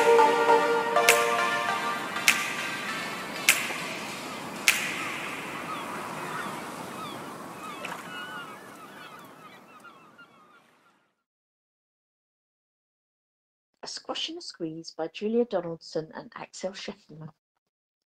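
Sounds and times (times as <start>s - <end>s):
noisy wash: 0.0s - 9.4s
whip-like cracks: 2.2s - 5.5s.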